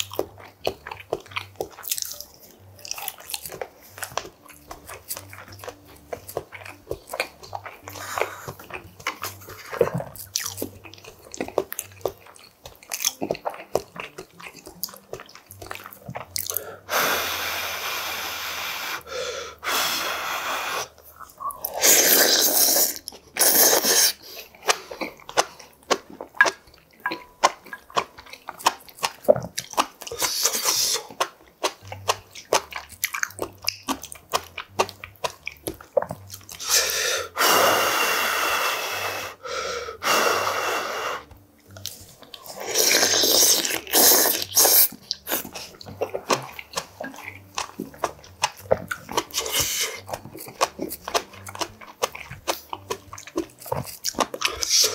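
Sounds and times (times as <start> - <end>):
wet chewing clicks: 0.0 - 19.1, 20.4 - 37.4, 41.2 - 54.9
loud slurps of noodles: 21.7 - 24.2, 42.6 - 45.4.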